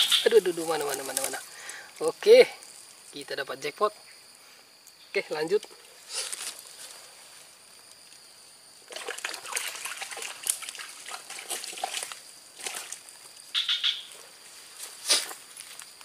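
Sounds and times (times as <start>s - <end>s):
water sloshing and splashing: 8.9s - 13.1s.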